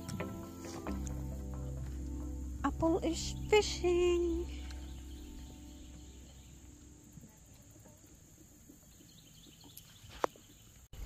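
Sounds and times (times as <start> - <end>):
background music: 0.0 - 7.5
insect drone: 0.0 - 9.7.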